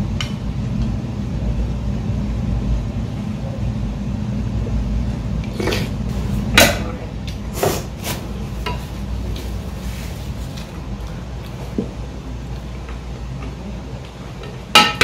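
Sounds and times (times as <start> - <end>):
steady low hum: 0.0 - 15.0
tableware clinking and knocking: 14.7 - 15.0.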